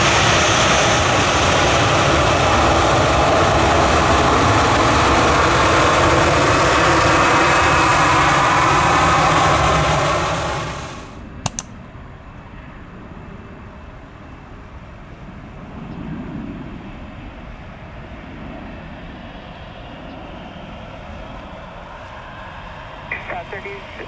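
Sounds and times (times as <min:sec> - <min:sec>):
sharp clicks: 0:11.5 - 0:11.8
distant jet engines rumbling: 0:15.3 - 0:24.0.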